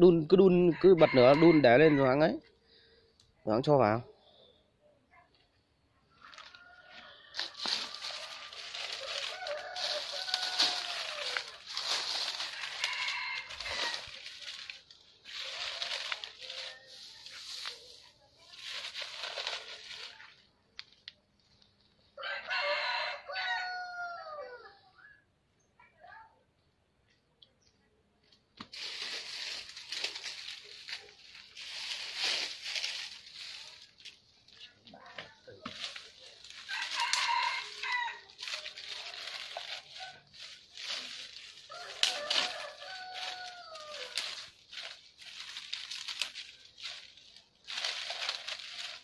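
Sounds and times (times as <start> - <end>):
dry leaves rustling and crunching: 6.1 - 24.0, 28.6 - 49.0.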